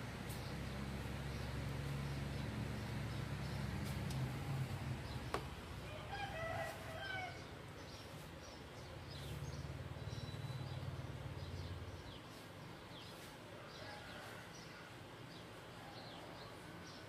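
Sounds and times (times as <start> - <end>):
rooster crowing: 5.8 - 7.5.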